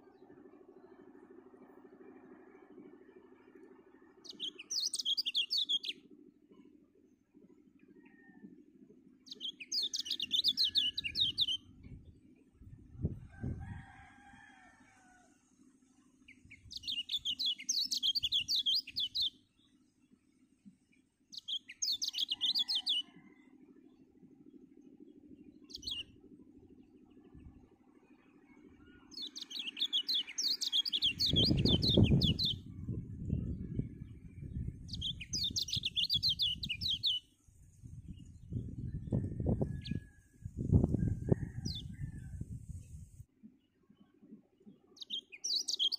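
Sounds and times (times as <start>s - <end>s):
low rumble: 31.2s - 36.8s.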